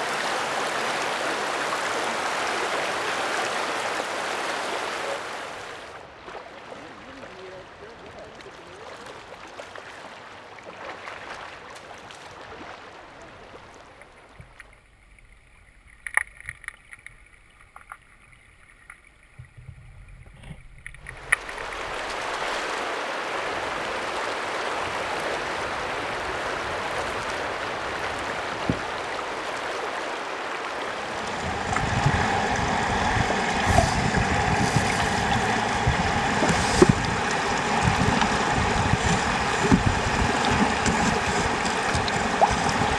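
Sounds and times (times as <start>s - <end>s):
river water running over gravel: 0.0s - 42.9s
water rumbling underwater: 13.4s - 22.6s, 30.6s - 42.9s.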